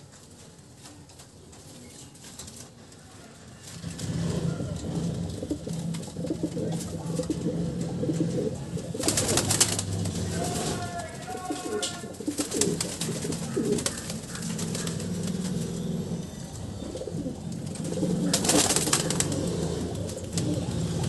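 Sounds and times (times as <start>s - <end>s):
wing flaps and scuffling: 3.6s - 15.8s, 17.0s - 21.0s
pigeons cooing: 3.8s - 21.0s.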